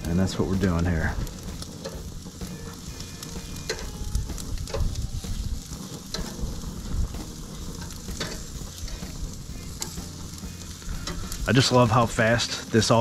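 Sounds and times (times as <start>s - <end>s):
food sizzling on a grill: 0.0s - 13.0s
metal tongs clicking: 3.6s - 4.0s, 7.7s - 9.1s.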